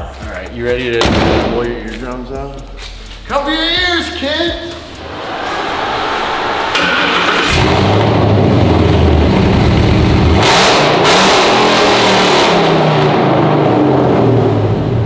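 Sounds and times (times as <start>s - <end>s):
loud engine revving: 6.5s - 15.0s.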